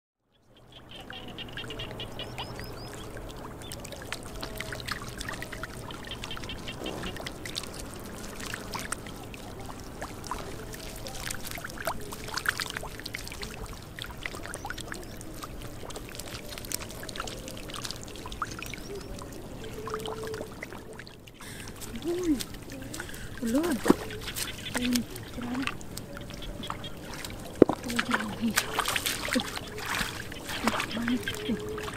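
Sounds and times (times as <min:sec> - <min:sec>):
fish splashing in water: 0:00.8 - 0:31.9.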